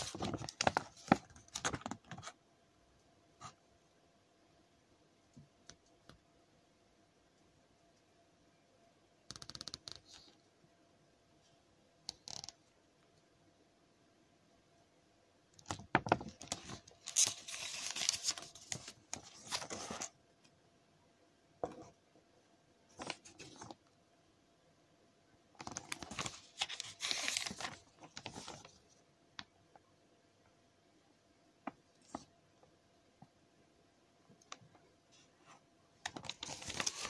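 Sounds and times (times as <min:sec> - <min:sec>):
paper pages rustling: 0:00.0 - 0:02.4, 0:15.6 - 0:20.2, 0:22.9 - 0:23.8, 0:25.6 - 0:28.9, 0:36.0 - 0:37.0.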